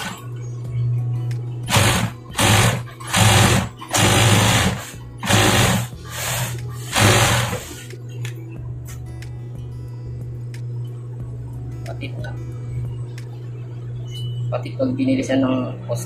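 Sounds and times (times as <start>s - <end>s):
sewing machine stitching: 0.0s - 0.2s, 1.7s - 7.8s
motor hum: 0.0s - 8.6s.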